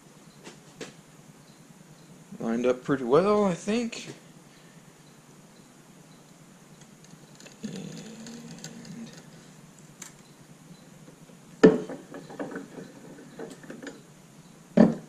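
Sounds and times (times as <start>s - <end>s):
press creaking: 7.2s - 9.4s.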